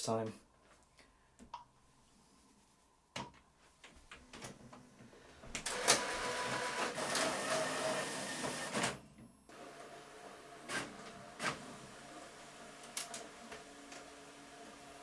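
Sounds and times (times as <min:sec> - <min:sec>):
scanner feed rollers running: 0:05.7 - 0:15.0.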